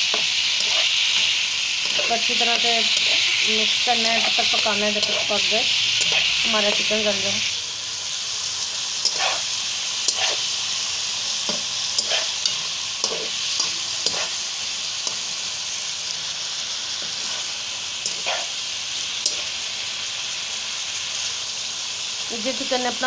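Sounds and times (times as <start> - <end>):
chicken sizzling in a pan: 0.0 - 23.0
metal spatula scraping pan: 0.1 - 6.9, 9.0 - 10.5, 11.5 - 14.4, 17.0 - 18.6.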